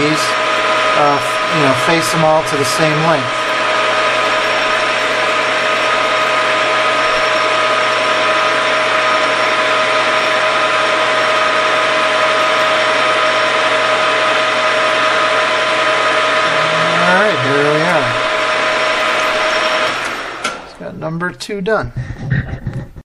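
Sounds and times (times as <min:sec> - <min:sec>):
metal lathe whining: 0:00.0 - 0:21.2.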